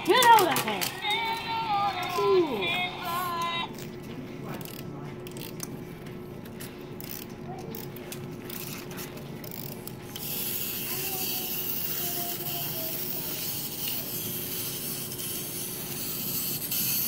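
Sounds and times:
wind-up toy clockwork ratcheting: 7.0 - 7.9, 8.5 - 8.8, 9.4 - 17.0.

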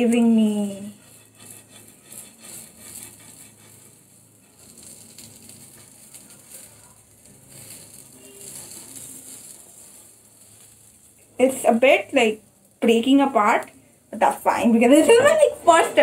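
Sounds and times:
batter sizzling in a pan: 0.0 - 16.0
metal spatula scraping and tapping: 0.9 - 11.1.

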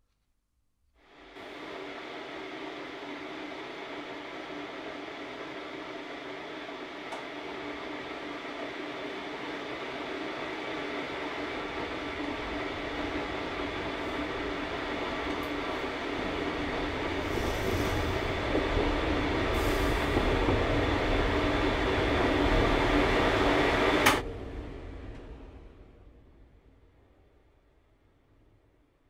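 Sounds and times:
droning rumbling noise: 1.1 - 29.0
deep rumble: 11.2 - 28.8.

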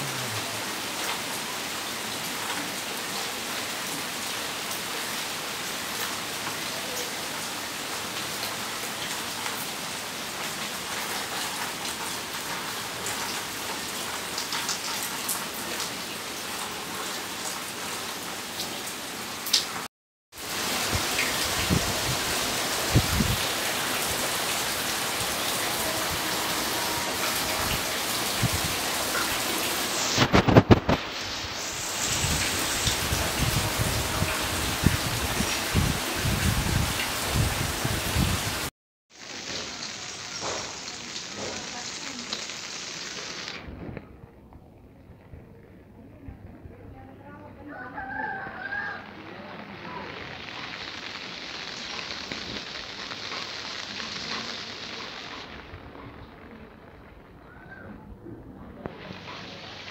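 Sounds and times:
rain on plants and pavement: 0.0 - 44.0, 47.7 - 59.9.

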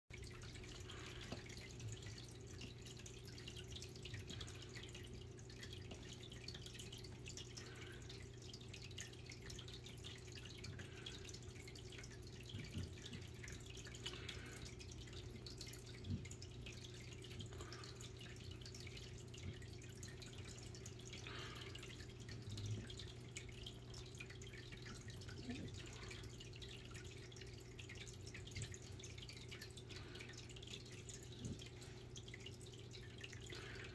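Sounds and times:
low electrical hum: 0.1 - 33.9
water dripping and trickling: 0.1 - 33.9.

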